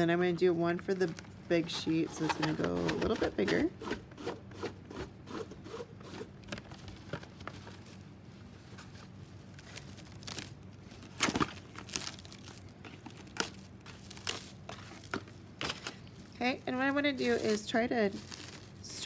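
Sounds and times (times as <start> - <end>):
plastic wrap crinkling: 6.3 - 19.0
plastic film tearing rasps: 9.5 - 19.0.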